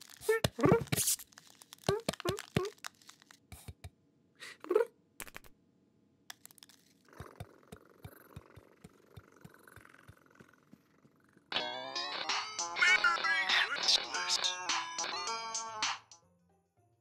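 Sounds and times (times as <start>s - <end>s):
soft rustling: 0.0s - 3.5s
music: 11.5s - 17.0s.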